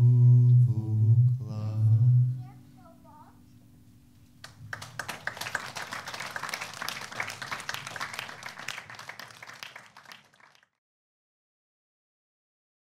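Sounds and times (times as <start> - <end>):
audience applauding: 4.4 - 10.8.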